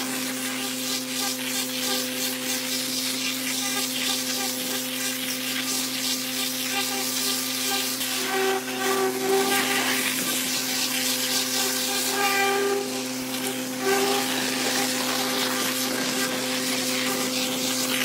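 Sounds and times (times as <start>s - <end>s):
high-pressure water lance blasting: 0.0s - 18.0s
machine hum: 6.5s - 18.0s.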